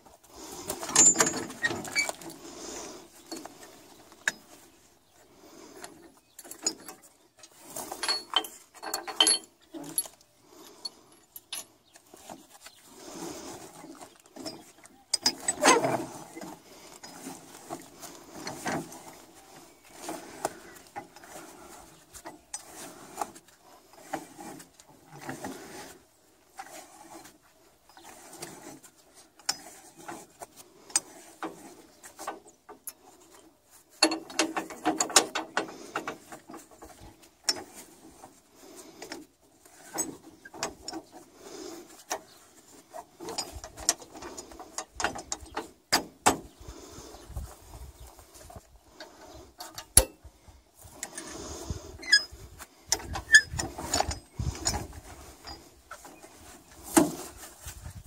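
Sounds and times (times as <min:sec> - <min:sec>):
metallic clinks and rattles of chains: 0:00.8 - 0:02.1, 0:07.7 - 0:11.8.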